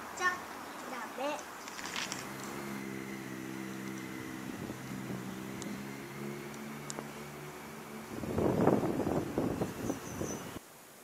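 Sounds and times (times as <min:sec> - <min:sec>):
motor humming: 0:02.1 - 0:10.6
faint ticks: 0:06.4 - 0:07.1.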